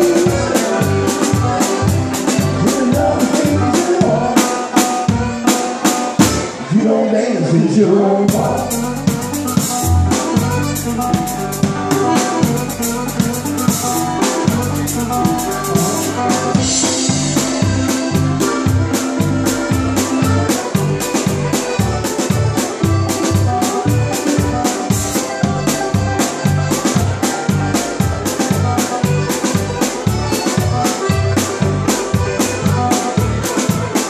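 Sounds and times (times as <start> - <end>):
banjo: 0.0 - 6.7, 8.3 - 34.0
accordion chords: 0.0 - 34.0
drum and cymbal strikes: 8.3 - 34.0.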